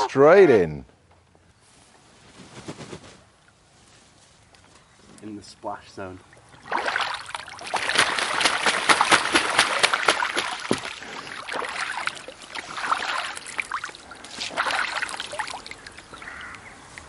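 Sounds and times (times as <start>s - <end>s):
geese splashing in water: 6.2s - 16.7s.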